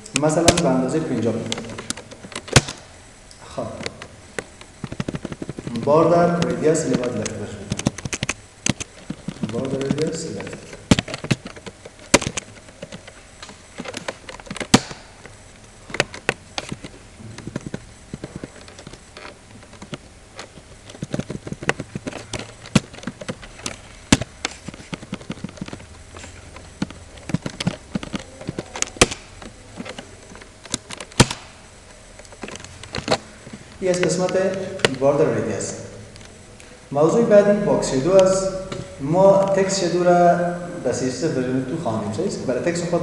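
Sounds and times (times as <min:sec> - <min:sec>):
mouse clicking: 0:06.4 - 0:15.0.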